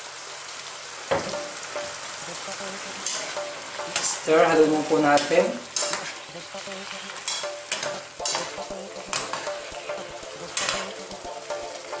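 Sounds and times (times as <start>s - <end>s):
cooking pan hissing: 0.0s - 12.0s
metal spoon scraping a pan: 3.0s - 6.4s, 7.0s - 9.7s, 10.5s - 11.0s.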